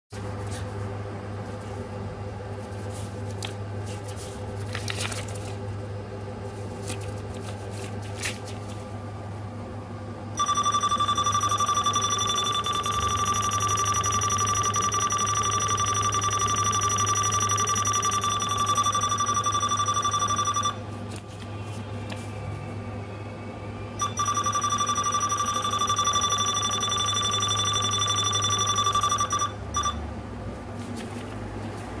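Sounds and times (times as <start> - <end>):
low steady hum: 0.2 - 32.0
high scanner beep tone: 10.4 - 20.8, 24.0 - 30.0.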